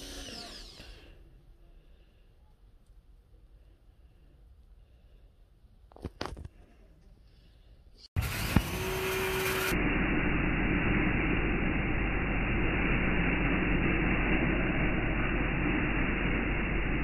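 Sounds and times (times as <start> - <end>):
steady rumbling with low hum: 0.0 - 17.0
brief steady tone: 8.6 - 16.9.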